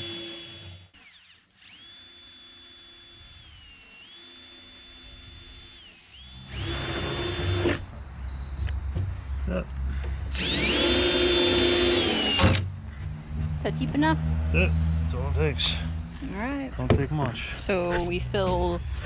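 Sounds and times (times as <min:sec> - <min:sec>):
cordless drill whining: 0:00.0 - 0:07.9, 0:10.3 - 0:12.6.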